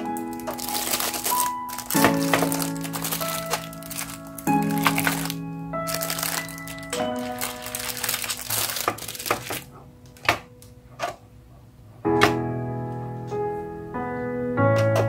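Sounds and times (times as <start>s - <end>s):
plastic wrapping crinkling: 0.0s - 9.8s
background music: 0.0s - 10.7s.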